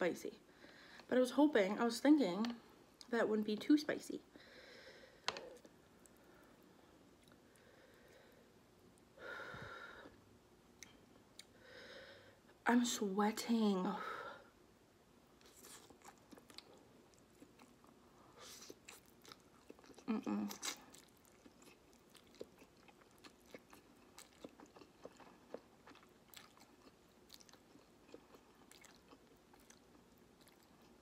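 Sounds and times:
wet chewing: 0:15.4 - 0:31.0.

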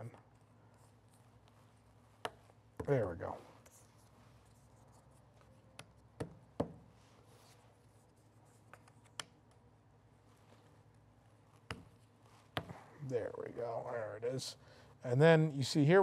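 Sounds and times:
soft rubbing: 0:00.3 - 0:05.7, 0:06.9 - 0:09.2, 0:10.0 - 0:14.4.

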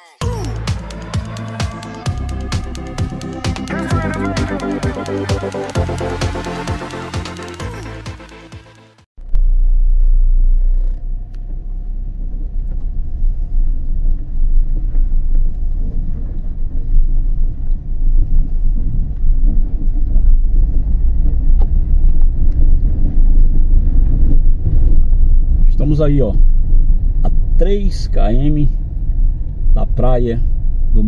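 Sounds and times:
car driving on road: 0:09.4 - 0:25.6.

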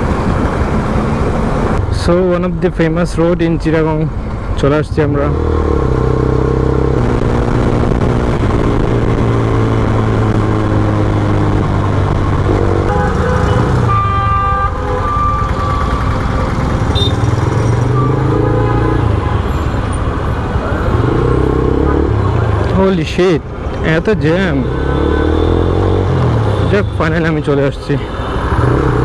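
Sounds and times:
road noise: 0:00.0 - 0:29.0
vehicle horns honking: 0:12.5 - 0:19.8
motorcycle engine running: 0:15.0 - 0:18.0.

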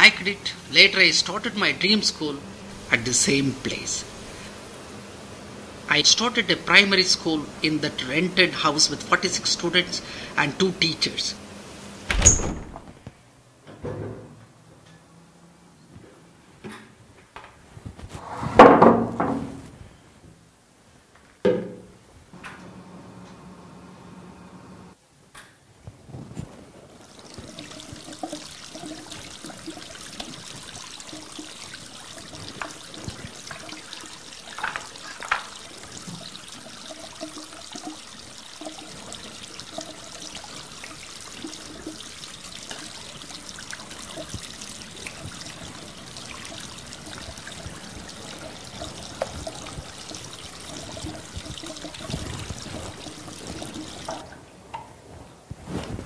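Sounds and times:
tap water splashing into basin: 0:27.0 - 0:54.9.

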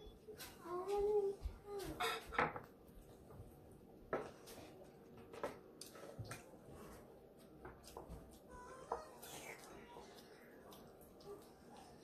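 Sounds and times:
soft mouth eating noises: 0:07.8 - 0:12.0.

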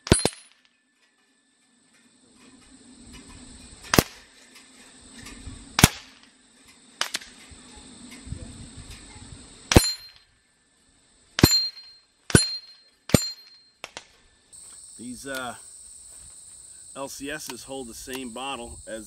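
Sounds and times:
pellets clanking on steel targets: 0:00.0 - 0:02.5, 0:09.7 - 0:10.4, 0:11.4 - 0:14.2.

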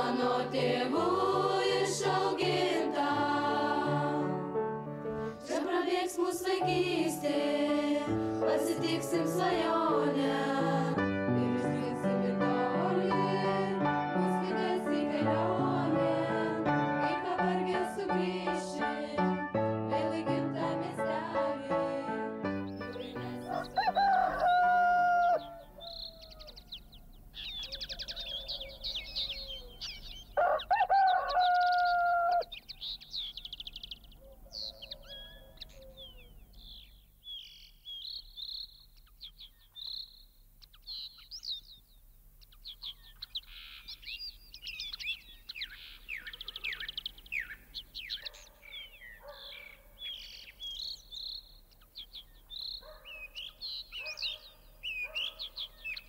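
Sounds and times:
songbirds chirping: 0:00.0 - 0:13.6, 0:22.4 - 0:56.0
rooster crowing: 0:23.4 - 0:26.8, 0:27.6 - 0:29.8, 0:30.4 - 0:32.6.

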